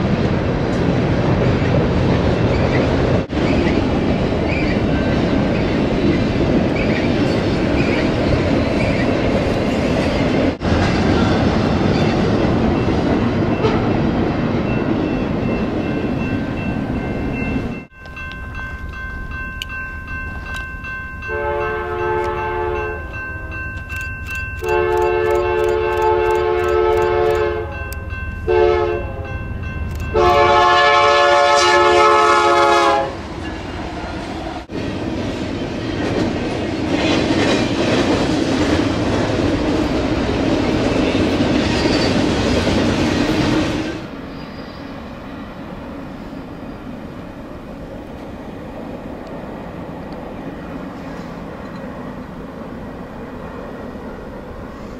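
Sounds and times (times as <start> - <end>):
freight cars rumbling on rails: 0.0 - 21.2, 32.9 - 54.9
locomotive air horn blasts: 21.3 - 23.0, 24.6 - 27.8, 28.5 - 29.3, 30.1 - 33.2.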